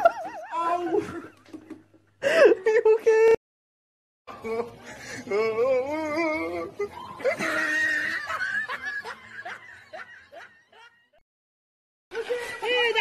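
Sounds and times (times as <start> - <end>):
person laughing hard: 7.2 - 10.9.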